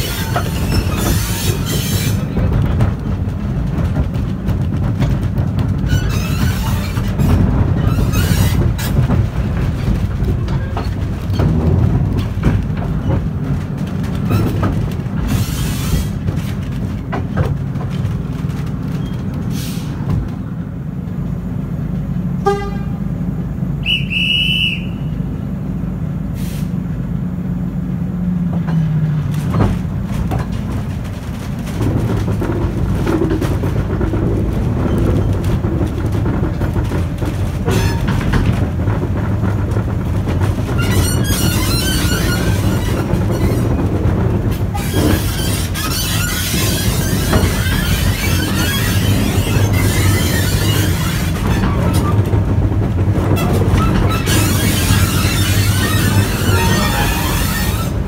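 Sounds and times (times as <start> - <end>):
wheels clicking over rails: 0.0 - 22.3, 28.0 - 58.0
diesel locomotive engine rumble: 0.0 - 58.0
train horn toots: 22.4 - 23.1, 23.8 - 25.2.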